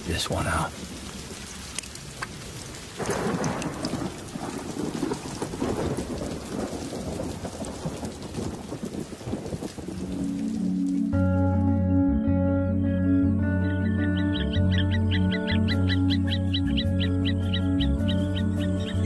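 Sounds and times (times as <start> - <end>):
thunder rumbling: 0.0 - 11.6
rain falling: 0.0 - 11.9, 14.5 - 19.0.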